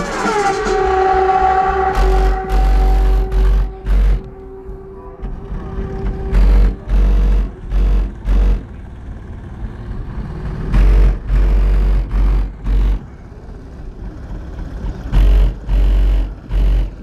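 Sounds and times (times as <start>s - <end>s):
bass-heavy music from car subwoofers: 15.2s - 17.0s.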